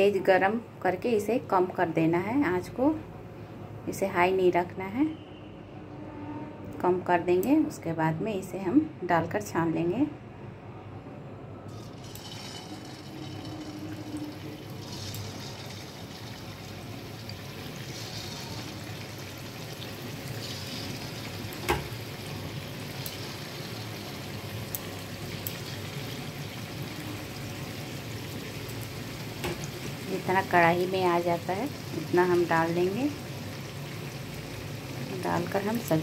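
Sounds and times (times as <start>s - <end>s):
dough sizzling in hot oil: 11.7s - 36.0s.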